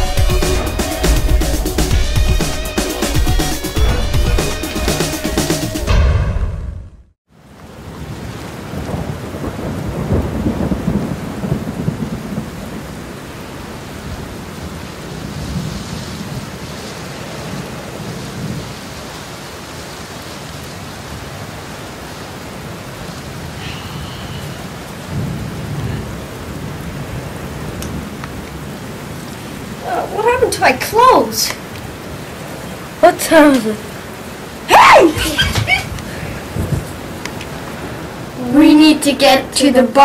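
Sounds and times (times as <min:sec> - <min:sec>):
steady rain: 0:00.0 - 0:05.9, 0:07.3 - 0:40.0
thunder rolling: 0:00.0 - 0:07.0, 0:08.0 - 0:13.2, 0:25.0 - 0:28.1, 0:34.6 - 0:40.0.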